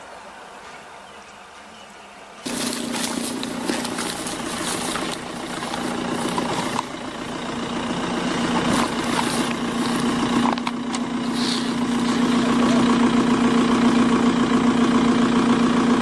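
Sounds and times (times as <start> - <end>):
engine idling: 2.4 - 16.0.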